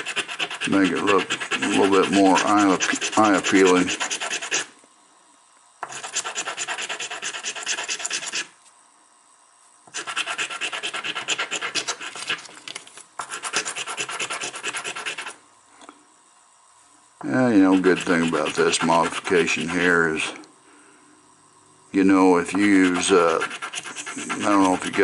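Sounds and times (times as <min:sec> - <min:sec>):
hand sanding brass tube: 0:00.0 - 0:04.7, 0:05.8 - 0:08.5, 0:09.9 - 0:12.4, 0:13.2 - 0:15.4, 0:17.5 - 0:19.9, 0:22.5 - 0:25.0.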